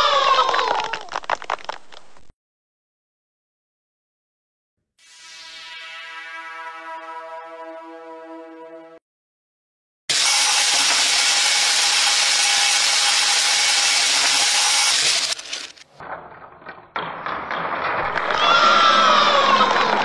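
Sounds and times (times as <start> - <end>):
plastic beads rattling: 10.5 - 15.9.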